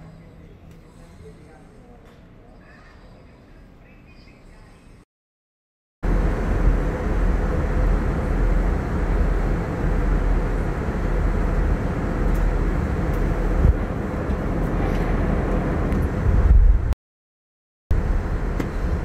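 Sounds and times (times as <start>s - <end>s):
airliner cabin rumble: 6.0s - 17.0s, 17.9s - 19.0s.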